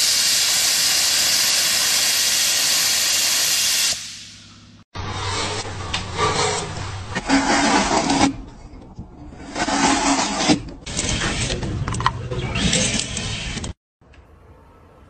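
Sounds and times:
blades shaving wood: 5.0 - 8.4, 9.4 - 11.4.

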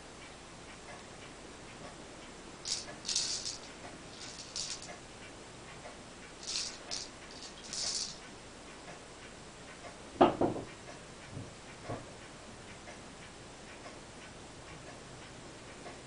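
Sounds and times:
cat food rattling in plastic ball: 2.7 - 5.0, 6.4 - 8.2.

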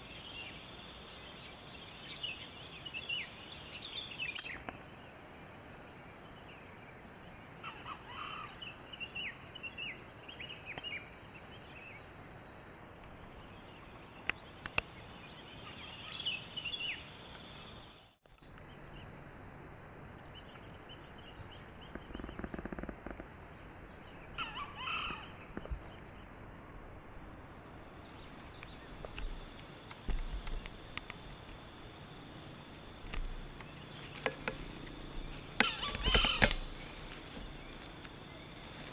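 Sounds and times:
insect drone: 0.0 - 38.9
bird calls: 6.4 - 12.1, 13.0 - 19.2, 20.3 - 23.3, 24.0 - 26.4, 32.7 - 38.9.

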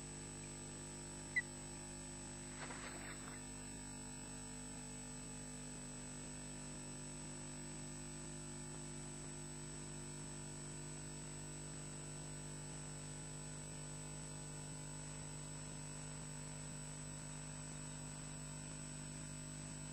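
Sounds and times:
electrical hum: 0.0 - 3.7
thin high whine: 2.5 - 3.4.

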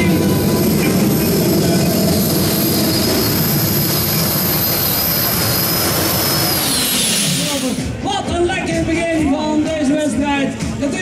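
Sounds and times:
thin high whine: 0.0 - 8.0
tractor engine running hard: 0.0 - 8.0.

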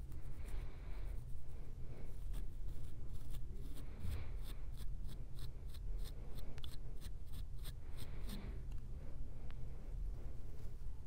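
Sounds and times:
comb scratching scalp: 0.0 - 8.5
heavy breath: 0.2 - 2.3, 7.8 - 10.6.

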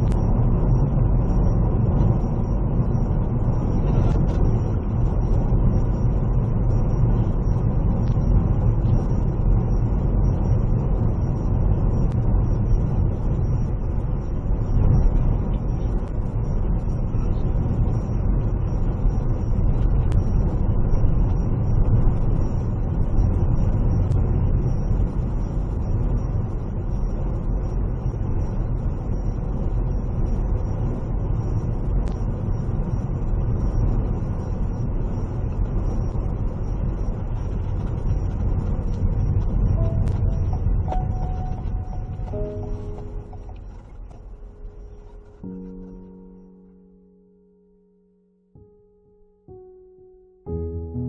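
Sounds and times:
vehicle driving on road: 0.0 - 49.6
sustained musical notes: 39.8 - 51.0.

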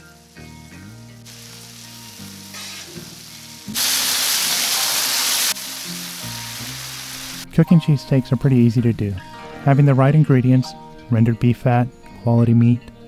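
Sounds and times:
steak and onions sizzling on griddle: 0.0 - 7.5
background music with steady tones: 0.0 - 13.0.

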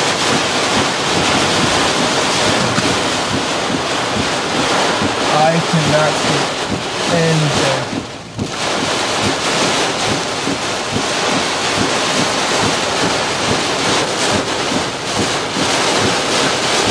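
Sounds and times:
heavy rain on car: 0.0 - 16.9.

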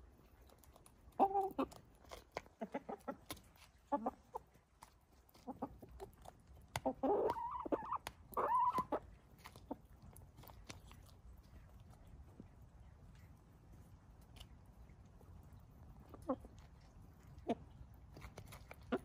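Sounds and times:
hens clucking: 1.0 - 10.0, 16.0 - 19.0.

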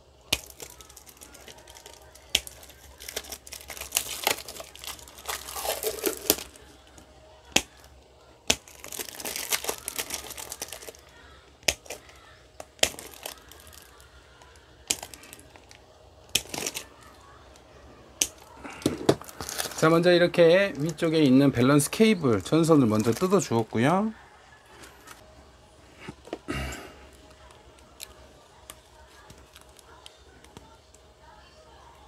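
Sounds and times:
rustling and tearing of tape: 0.3 - 7.9, 8.5 - 17.2, 18.2 - 20.0.

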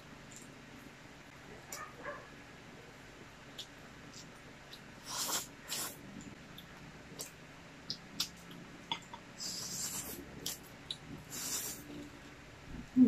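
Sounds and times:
slurping noodles: 5.0 - 6.0, 9.4 - 10.6, 11.2 - 12.0
wet mouth clicks and chewing: 6.5 - 9.2.

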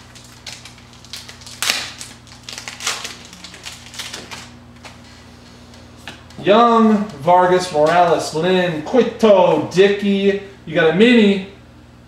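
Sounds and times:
wrapper tearing and crinkling: 0.0 - 5.0.

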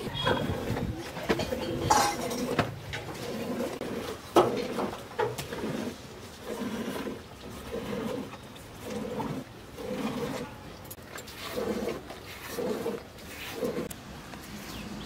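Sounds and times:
metal pail clinking: 0.0 - 3.5.

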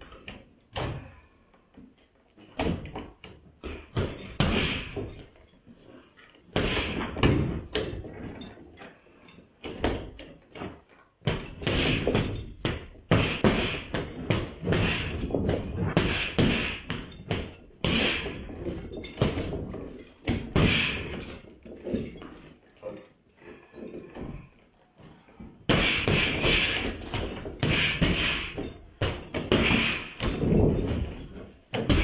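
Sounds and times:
punches on heavy bag: 3.7 - 5.2, 6.6 - 8.4, 11.3 - 22.2, 25.7 - 32.0.

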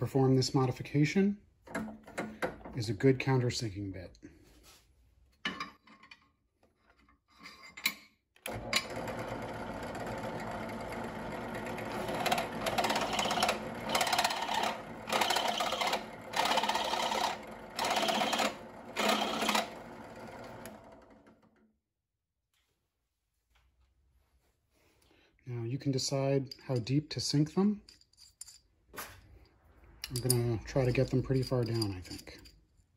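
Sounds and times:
drill press motor winding down: 8.4 - 21.5
drill press cutting metal: 8.5 - 21.4.

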